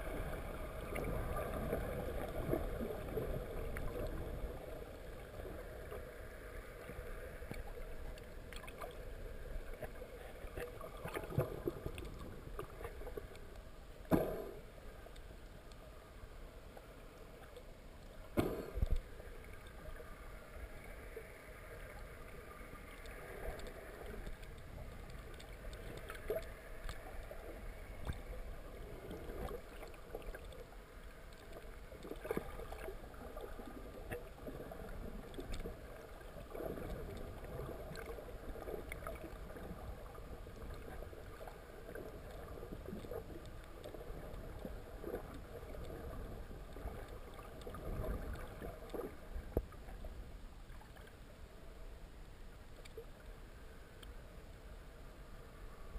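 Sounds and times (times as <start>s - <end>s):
underwater rumble and hiss: 0.0s - 55.9s
faint clicks and knocks: 16.7s - 19.9s, 22.6s - 28.4s, 52.7s - 53.2s.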